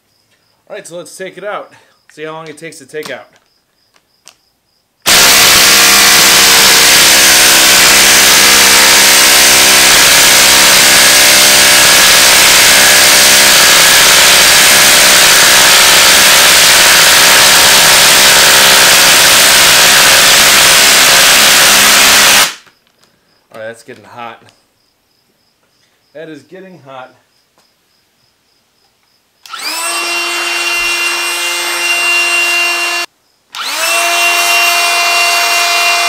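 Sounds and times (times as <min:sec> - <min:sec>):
impact driver hammering: 0:05.1 - 0:22.6.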